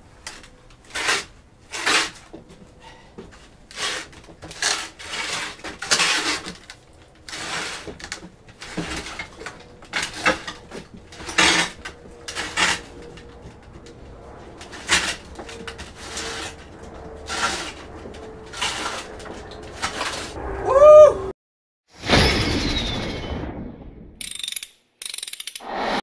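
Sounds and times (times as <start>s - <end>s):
wooden pallet scraping on concrete: 0.3s - 20.4s.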